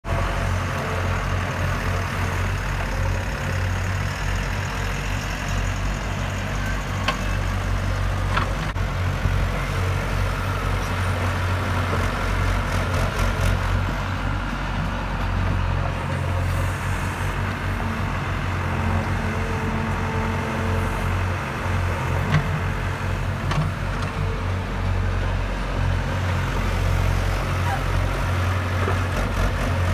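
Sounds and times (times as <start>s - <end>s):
excavator diesel engine running: 0.1s - 29.9s.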